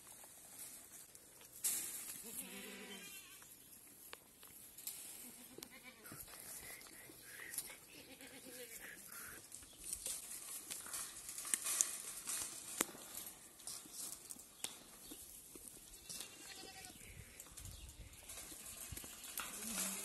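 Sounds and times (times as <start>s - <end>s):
goat chewing twigs: 3.4s - 8.0s, 8.7s - 17.6s
leaves rustling: 8.5s - 15.5s, 16.1s - 20.0s
twigs snapping: 9.5s - 15.2s.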